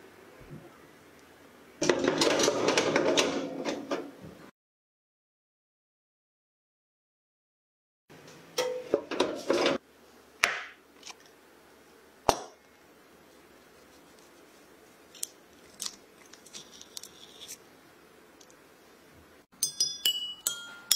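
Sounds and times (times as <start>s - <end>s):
baking tin rattling and scraping: 1.8s - 4.1s, 8.7s - 9.8s.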